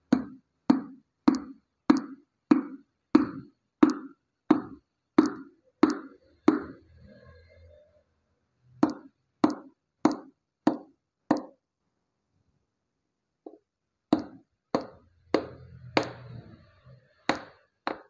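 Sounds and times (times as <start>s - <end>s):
hammer knocking on metal: 0.0s - 6.8s, 8.8s - 11.6s, 13.5s - 18.0s.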